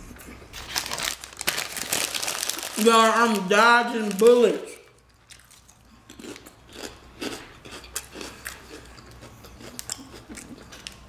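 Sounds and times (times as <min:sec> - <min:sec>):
crunching crisp chips: 0:00.6 - 0:11.0.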